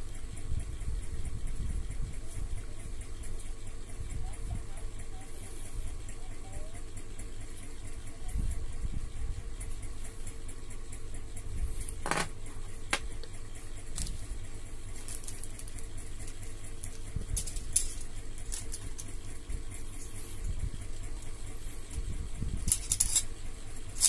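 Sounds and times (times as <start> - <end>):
low background rumble: 0.0 - 24.0
plastic parts clicking on table: 15.0 - 19.1, 22.7 - 23.2.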